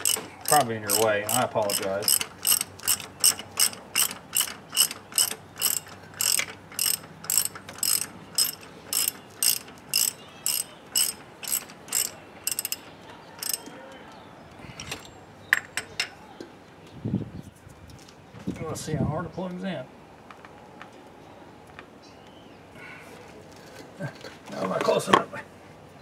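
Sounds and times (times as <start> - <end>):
hand ratchet clicking: 0.0 - 12.8, 13.4 - 13.7.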